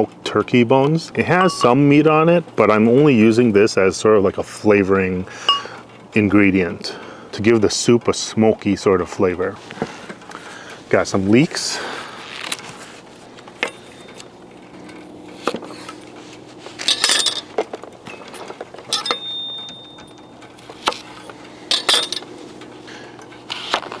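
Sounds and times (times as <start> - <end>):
faint steady hum: 5.1 - 7.5, 8.4 - 24.0
kitchen utensils and dishes clinking: 18.1 - 20.2.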